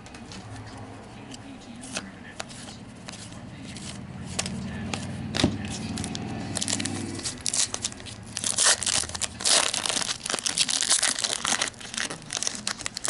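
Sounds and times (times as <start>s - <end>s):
foil wrapper tearing and crinkling: 5.3s - 13.0s.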